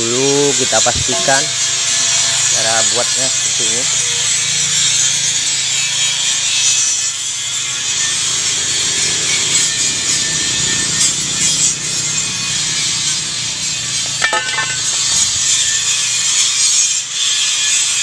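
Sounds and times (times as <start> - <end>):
steel pipe frame scraping on concrete: 0.5 - 4.1, 13.7 - 17.9.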